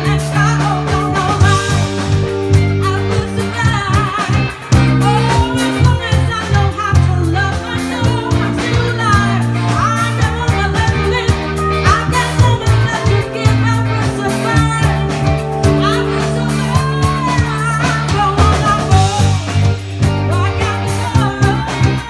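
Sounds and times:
rock band playing: 0.0s - 22.0s
woman singing: 0.0s - 22.0s.

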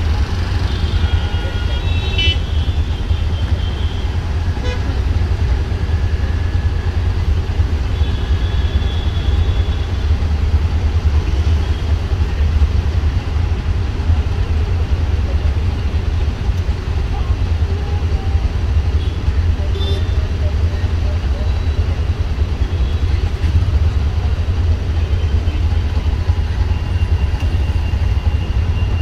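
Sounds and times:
idling traffic engine rumble: 0.0s - 29.0s
vehicle horn: 0.6s - 5.0s, 19.0s - 20.2s.

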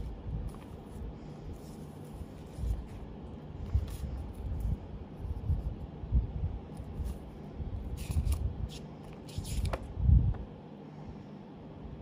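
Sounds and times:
paper handling bumps: 0.0s - 4.8s, 7.9s - 9.9s
paper rustling: 0.0s - 5.4s, 7.9s - 9.9s.

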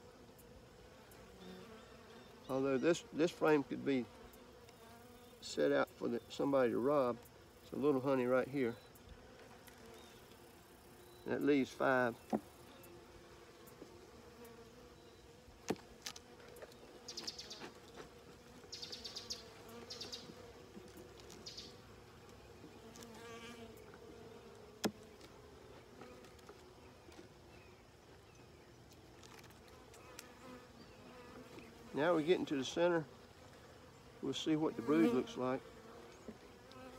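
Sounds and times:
honeybees buzzing: 0.0s - 36.9s
hive tool knocking on wood: 12.2s - 12.5s, 15.6s - 15.9s, 24.8s - 25.3s.

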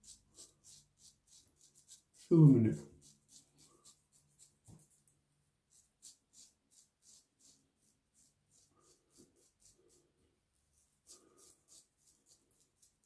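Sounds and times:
razor scraping stubble: 0.0s - 5.1s, 5.7s - 10.1s, 10.7s - 13.0s.

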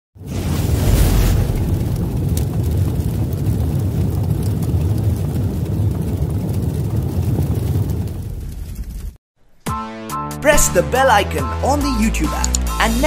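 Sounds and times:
low rumbling sound effect: 0.2s - 9.2s.

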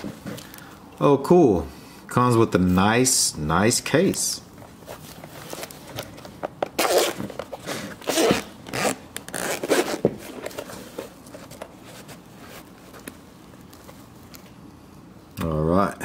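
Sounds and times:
zipper being unzipped: 6.8s - 7.2s, 8.0s - 10.0s.

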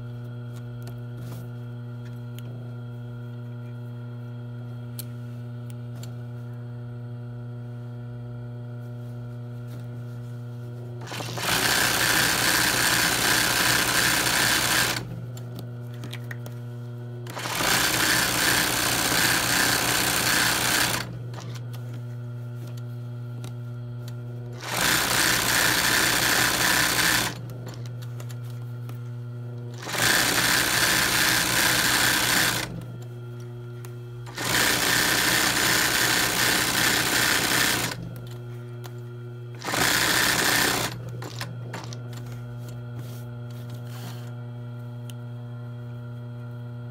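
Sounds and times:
steady motor hum: 0.0s - 46.9s
sewing machine stitching: 11.0s - 15.1s, 17.3s - 21.6s, 24.6s - 27.8s, 29.8s - 32.8s, 34.3s - 38.0s, 39.6s - 42.0s.

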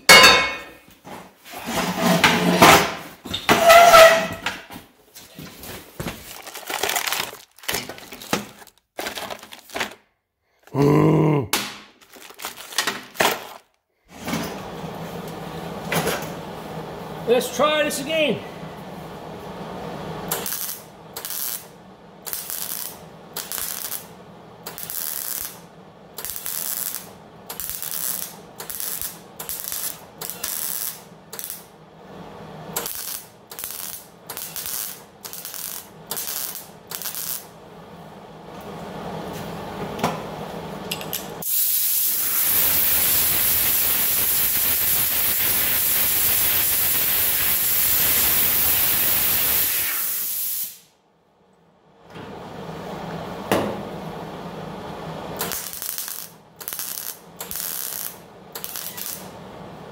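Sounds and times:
welder tack weld bursts: 20.3s - 25.6s, 26.2s - 31.7s, 32.8s - 37.5s, 41.4s - 50.9s, 55.4s - 59.3s
compressed air hissing: 41.4s - 50.9s.

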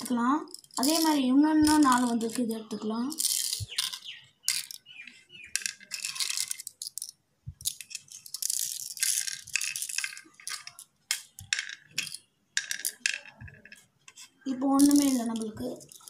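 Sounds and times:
shells clicking and rattling: 0.0s - 13.9s, 14.7s - 16.0s.

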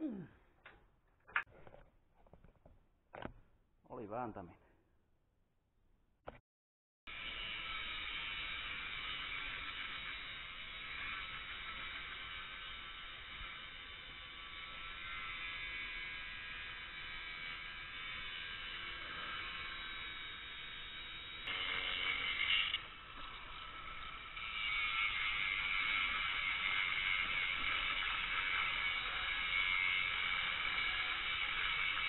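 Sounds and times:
angle grinder cutting steel: 7.1s - 32.0s.

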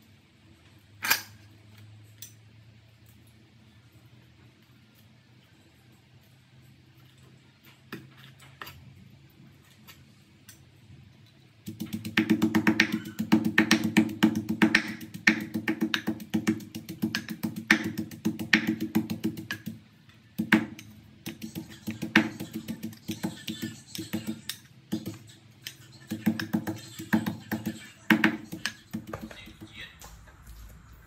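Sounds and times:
wooden pestle pounding in mortar: 11.7s - 19.8s.

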